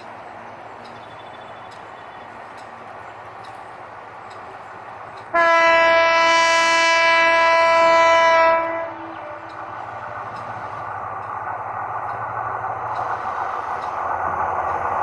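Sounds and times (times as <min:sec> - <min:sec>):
train running noise: 0:00.0 - 0:15.0
locomotive air horn blast: 0:05.3 - 0:10.3.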